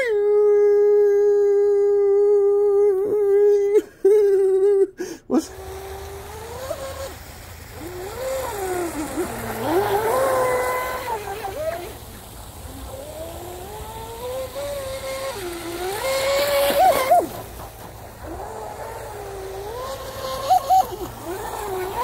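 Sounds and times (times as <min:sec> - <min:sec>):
high whine of electric motor: 0:05.5 - 0:22.0.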